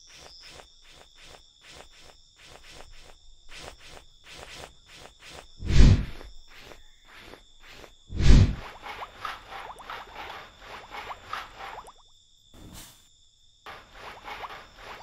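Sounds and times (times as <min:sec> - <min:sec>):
crickets chirping: 0:00.0 - 0:15.0
loud short swish: 0:05.6 - 0:06.3, 0:08.1 - 0:08.6.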